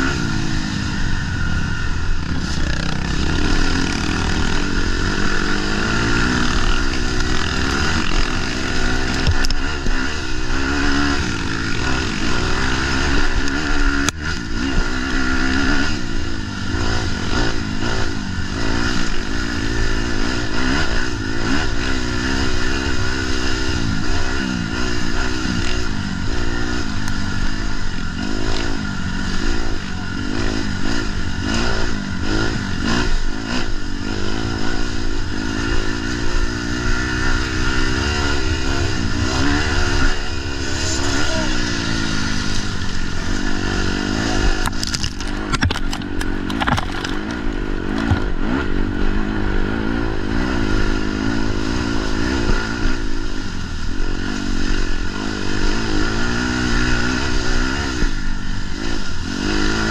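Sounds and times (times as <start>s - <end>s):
snowmobile engine revving: 0.0s - 59.9s
clattering and scraping over ground: 44.6s - 48.3s.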